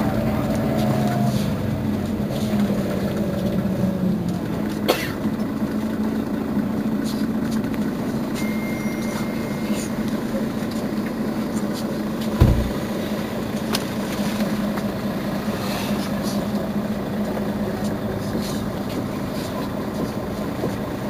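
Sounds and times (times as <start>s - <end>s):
bus engine idling: 0.0s - 21.0s
heavy thump: 12.4s - 12.9s.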